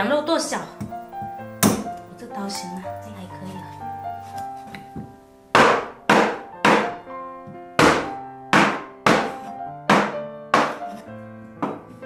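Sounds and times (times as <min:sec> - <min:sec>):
background music: 0:00.0 - 0:12.0
cleaver chopping on wooden board: 0:05.6 - 0:07.0, 0:07.8 - 0:11.0, 0:11.6 - 0:11.8.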